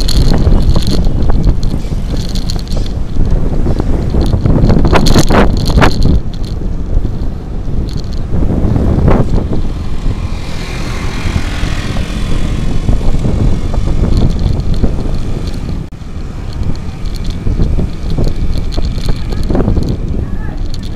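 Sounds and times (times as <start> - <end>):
wind buffeting microphone: 0.0 - 20.9
truck passing: 8.3 - 19.9.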